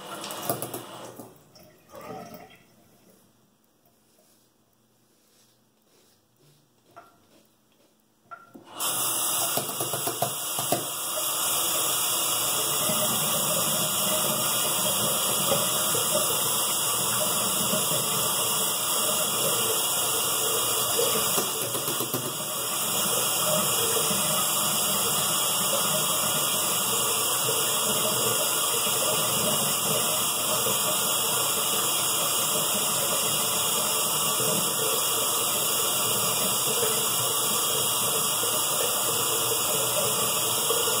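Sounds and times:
tap running into sink: 0.1 - 1.4, 8.3 - 11.3, 20.5 - 26.5.

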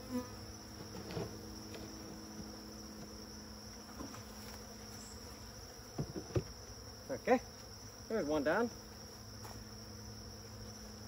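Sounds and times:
crickets chirping: 0.0 - 11.0
honeybees humming: 0.0 - 11.0
knock on wooden hive box: 5.9 - 6.6.

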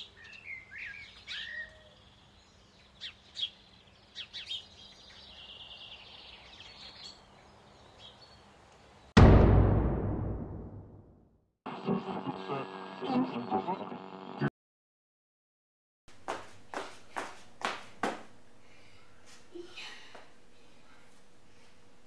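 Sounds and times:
sudden loud hit: 9.2 - 11.2.

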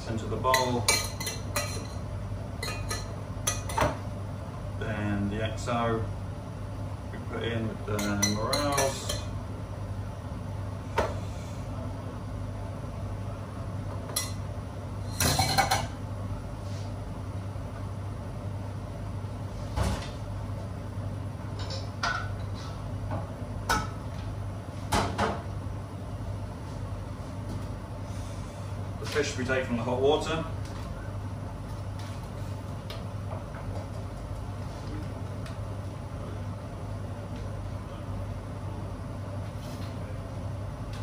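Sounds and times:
ventilation hum: 0.0 - 41.0
metal pans and utensils clattering: 15.1 - 15.9.

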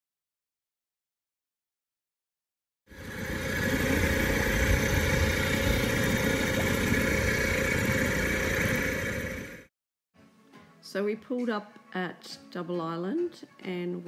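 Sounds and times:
outboard motor running: 2.9 - 9.7
wind rumbling on microphone: 3.0 - 9.4.

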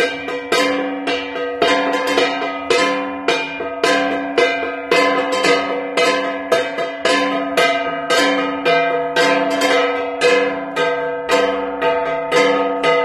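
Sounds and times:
bronze gong struck rhythmically: 0.0 - 13.0.

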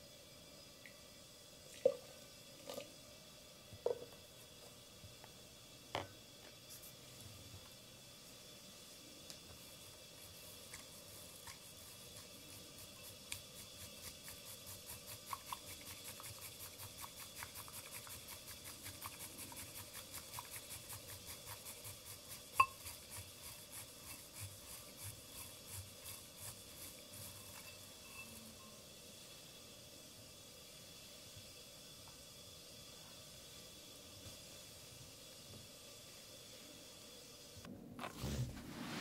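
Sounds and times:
tea whisk scratchy strokes: 9.0 - 28.6.

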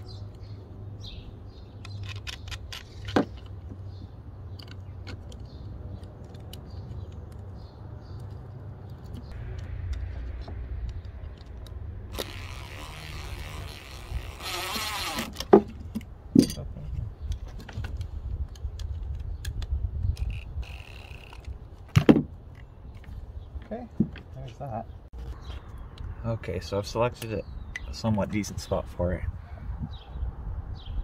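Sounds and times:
low wind rumble on microphone: 6.7 - 15.0, 15.7 - 21.8, 25.1 - 31.0
metal hardware clinking: 15.5 - 16.8.

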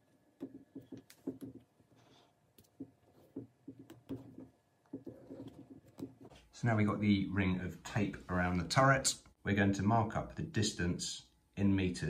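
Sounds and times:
fingers tapping and rubbing: 0.0 - 6.4.

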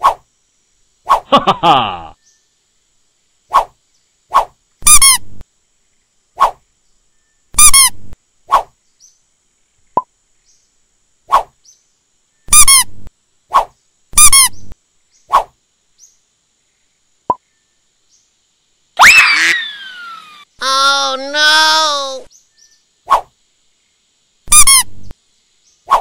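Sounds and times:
rubber duck toy squeaks: 4.8 - 5.2, 7.6 - 8.0, 12.5 - 12.9, 14.2 - 14.6, 24.5 - 24.9
rubber duck squeal: 24.5 - 24.9.

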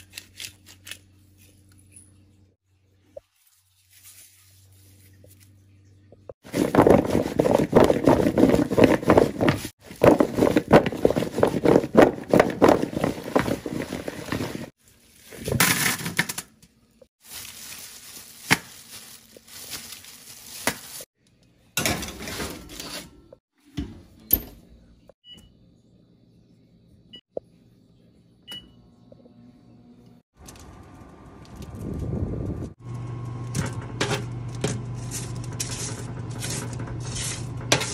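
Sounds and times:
foil crinkling: 17.2 - 21.1.

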